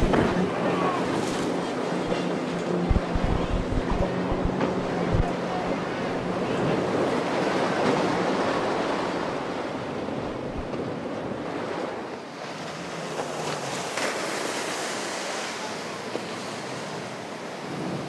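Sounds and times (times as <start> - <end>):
wind buffeting microphone: 0.0 - 7.5
breaking waves and hull spray: 0.0 - 18.0.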